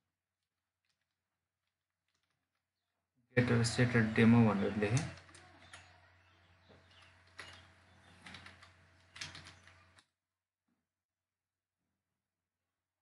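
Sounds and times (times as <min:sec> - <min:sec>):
keyboard keystrokes: 0:06.9 - 0:10.0.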